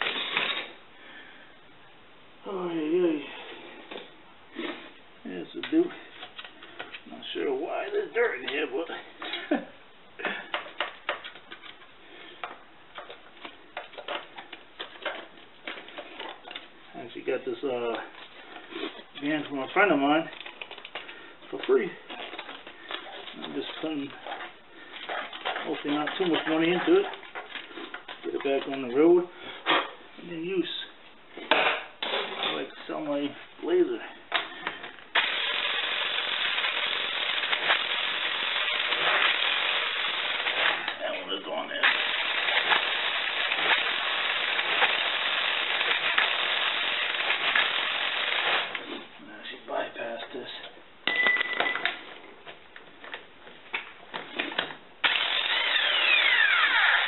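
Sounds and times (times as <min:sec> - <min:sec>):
electric impact wrench running: 0:35.1 - 0:40.9, 0:41.8 - 0:48.8, 0:55.0 - 0:57.0.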